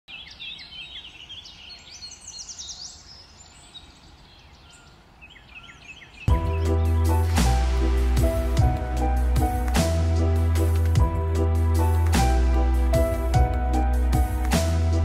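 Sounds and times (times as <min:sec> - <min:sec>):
small birds chirping: 0:00.1 - 0:07.8
loud music with heavy bass: 0:06.3 - 0:15.0.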